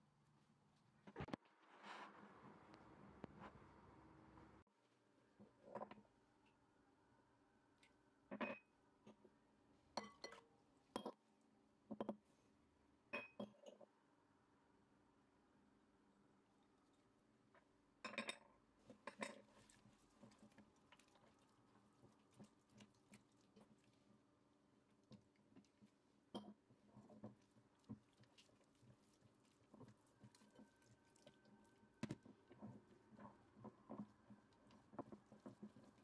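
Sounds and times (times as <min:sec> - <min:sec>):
hand mixing cookie batter: 0:18.8 - 0:36.0.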